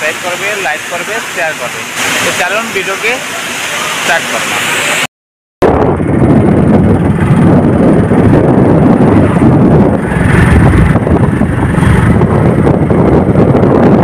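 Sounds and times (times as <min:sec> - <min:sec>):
road and vehicle noise: 0:00.0 - 0:14.0
wind buffeting microphone: 0:05.6 - 0:14.0.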